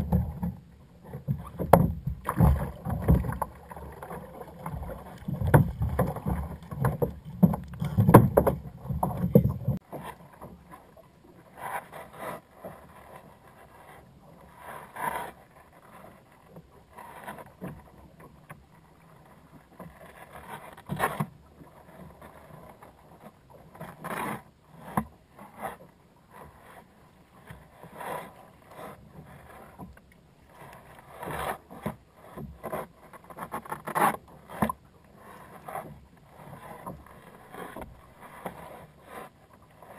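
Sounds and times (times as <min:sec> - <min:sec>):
water slapping plastic kayak hull: 0:00.0 - 0:11.0.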